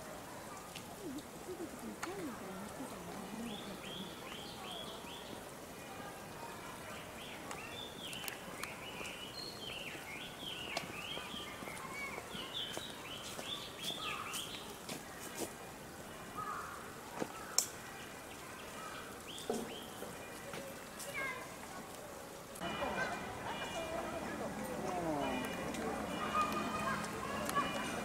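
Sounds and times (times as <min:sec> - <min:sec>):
small birds chirping: 0:00.5 - 0:05.5, 0:06.4 - 0:21.4
faint clicks: 0:07.4 - 0:09.2, 0:17.2 - 0:18.5.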